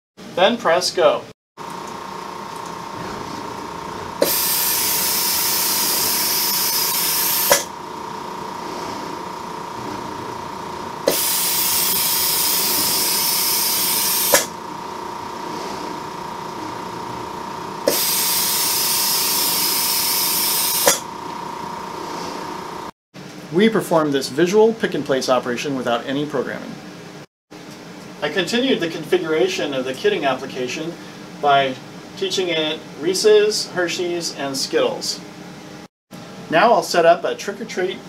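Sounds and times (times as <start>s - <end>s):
vacuum suction gripper hissing: 4.2s - 7.8s, 11.0s - 14.6s, 17.8s - 21.1s.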